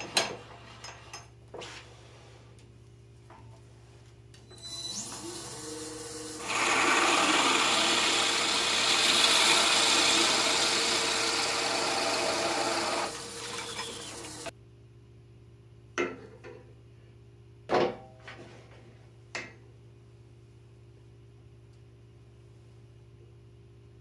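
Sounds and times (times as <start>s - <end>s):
drill boring into wood: 4.7s - 14.5s
wood lathe spinning: 4.9s - 14.5s.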